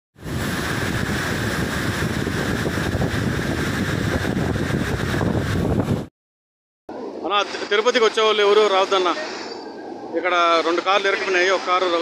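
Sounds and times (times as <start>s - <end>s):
floodwater rushing: 0.2s - 6.0s, 7.0s - 12.0s
wind buffeting microphone: 0.2s - 6.1s.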